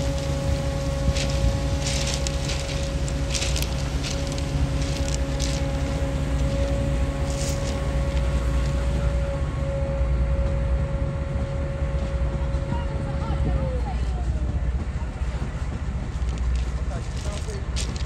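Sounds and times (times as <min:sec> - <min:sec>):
wind on microphone: 0:00.0 - 0:09.6
heavy engine rumble: 0:00.0 - 0:18.0
steady high whine: 0:00.0 - 0:18.0.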